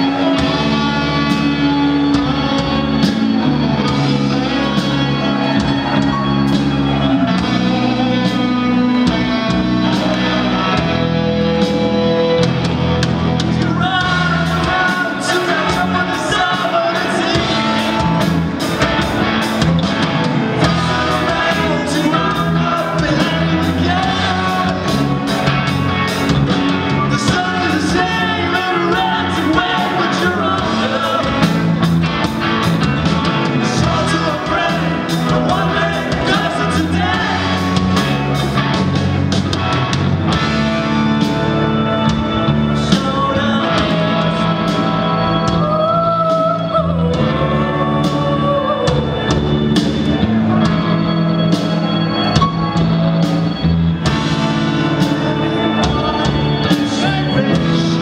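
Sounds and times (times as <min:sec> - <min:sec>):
man singing: 0:00.0 - 0:06.0, 0:13.5 - 0:18.4, 0:20.6 - 0:25.5, 0:26.9 - 0:31.9, 0:33.4 - 0:38.2, 0:41.2 - 0:49.7, 0:54.7 - 0:58.0
bass guitar: 0:00.0 - 0:58.0
drums keeping a steady beat: 0:00.0 - 0:58.0
electric guitars: 0:00.0 - 0:58.0.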